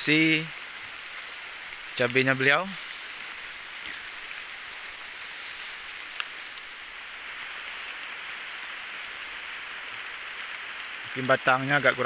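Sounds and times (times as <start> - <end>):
light rain: 0.0 - 12.0
faint tick: 6.1 - 6.4.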